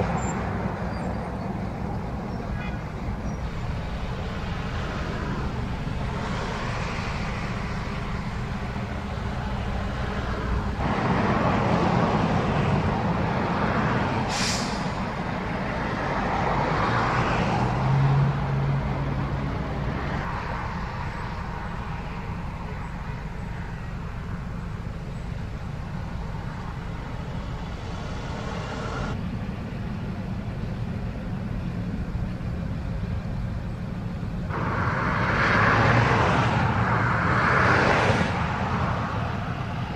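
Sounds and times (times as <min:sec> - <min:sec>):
low engine hum: 0:00.0 - 0:39.9
vehicles passing on highway: 0:00.0 - 0:39.9
short hiss: 0:14.3 - 0:15.0.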